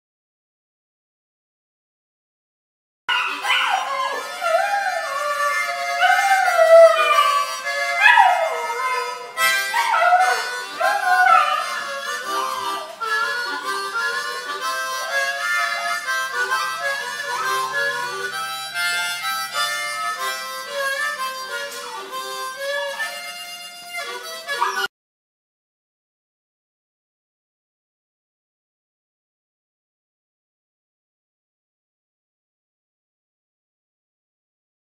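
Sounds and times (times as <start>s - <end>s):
puppy howling: 3.1s - 14.0s, 14.9s - 18.3s, 24.5s - 24.9s
harmonica playing a tune: 3.1s - 24.9s.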